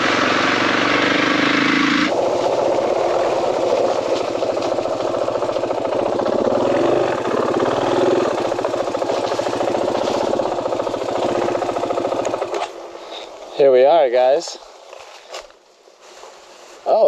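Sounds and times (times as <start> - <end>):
motorcycle engine running at low revs: 0.0 - 12.8.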